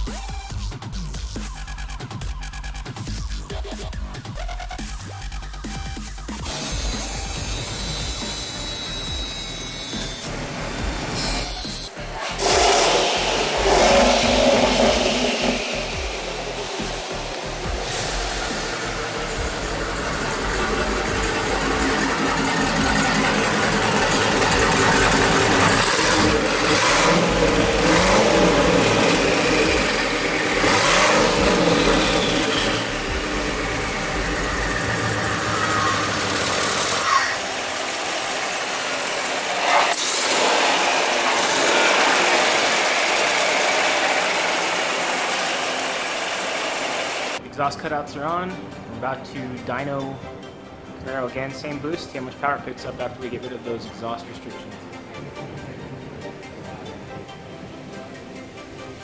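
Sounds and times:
car engine revving: 6.2s - 47.4s
sharp engine spikes: 6.4s - 47.4s.

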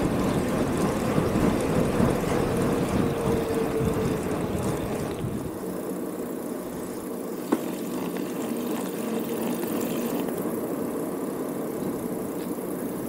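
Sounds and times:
wind noise: 0.0s - 5.9s
bicycle tyre noise on road: 0.0s - 13.0s.

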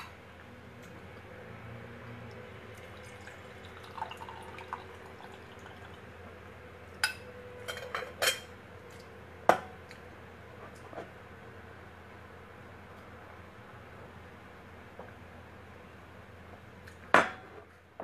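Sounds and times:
liquid trickle: 2.2s - 6.3s.

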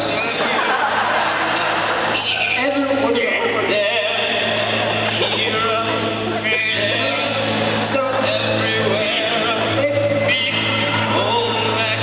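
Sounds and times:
strummed acoustic guitar: 0.0s - 12.0s
men singing: 3.1s - 12.0s.

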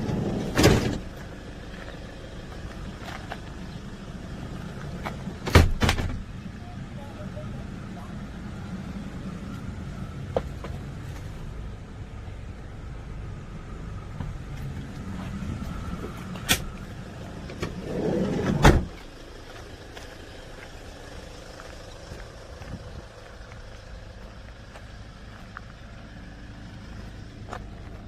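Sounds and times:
sliding door rolling and thumping shut: 0.0s - 1.1s, 17.5s - 19.0s
low steady rumble: 6.1s - 28.0s.

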